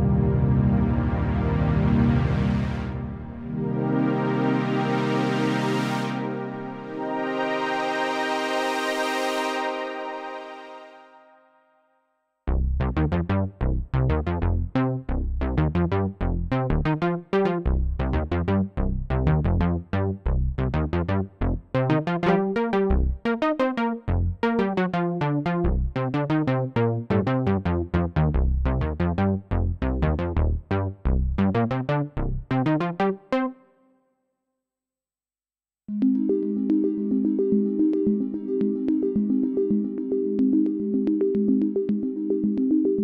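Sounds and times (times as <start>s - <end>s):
low synthesizer bass line: 0.0s - 8.2s, 12.5s - 23.3s, 23.9s - 33.2s
short sharp synthesizer notes: 22.2s - 22.9s.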